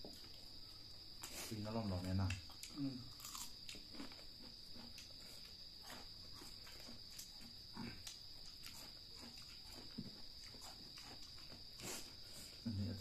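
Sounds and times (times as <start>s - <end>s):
crickets chirring: 0.0s - 13.0s
eating crunches and clicks: 1.2s - 12.1s.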